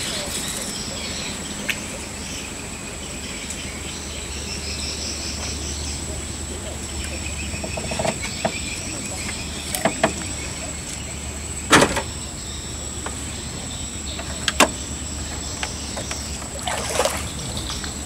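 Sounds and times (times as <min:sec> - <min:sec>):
insect trill: 0:00.0 - 0:18.0
steady low hum: 0:00.0 - 0:18.0
fishing poles knocking on boat: 0:09.7 - 0:10.4.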